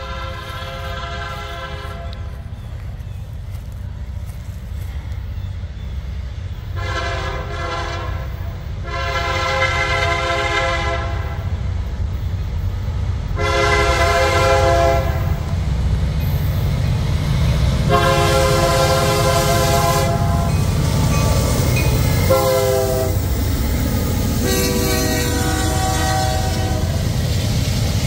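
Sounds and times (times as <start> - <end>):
locomotive horn blasts: 0.0 - 2.4, 6.7 - 11.5, 13.4 - 15.5, 17.9 - 20.7, 21.9 - 23.3, 24.4 - 27.1
moving train rumble: 0.0 - 28.0.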